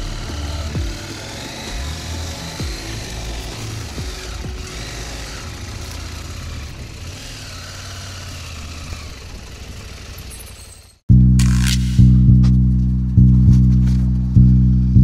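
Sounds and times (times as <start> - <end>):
loud music with heavy bass: 0.0 - 6.2, 11.1 - 15.0
motorcycle engine running: 0.0 - 15.0
wind or road noise: 0.0 - 15.0.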